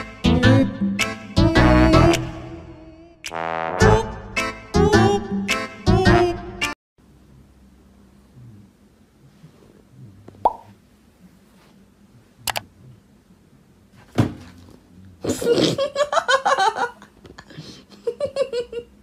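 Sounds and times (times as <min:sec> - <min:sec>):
person giggling: 0:15.2 - 0:19.0.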